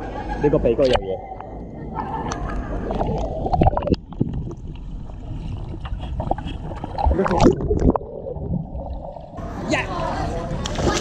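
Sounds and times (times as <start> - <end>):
water sloshing and splashing: 2.1 - 11.0.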